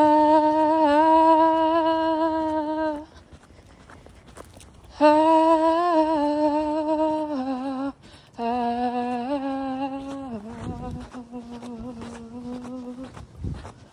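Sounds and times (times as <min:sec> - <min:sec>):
woman singing wordless melody: 0:00.0 - 0:03.3, 0:04.9 - 0:13.7
woman breathing: 0:08.0 - 0:08.4.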